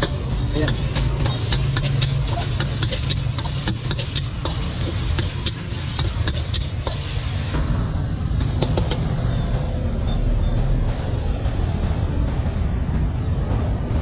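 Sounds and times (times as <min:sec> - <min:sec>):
food sizzling: 0:00.0 - 0:07.6
metal spatula scraping wok: 0:00.0 - 0:07.6
low hum: 0:00.0 - 0:14.0.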